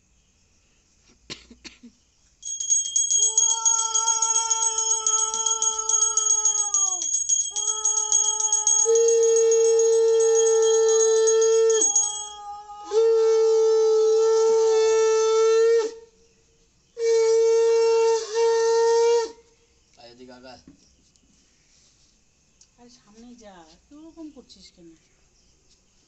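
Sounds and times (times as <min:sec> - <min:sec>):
small hand bell ringing: 0:02.4 - 0:12.5.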